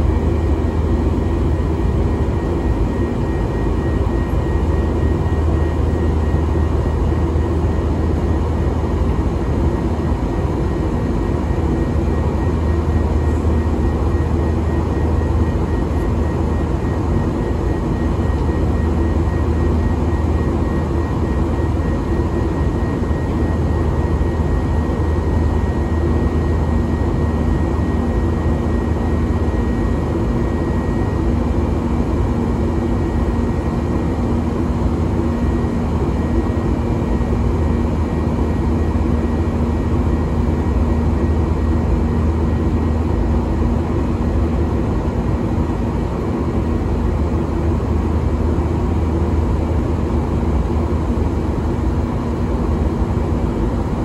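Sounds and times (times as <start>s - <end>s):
jet engine drone in cabin: 0.0s - 54.0s
steady hums: 0.0s - 54.0s.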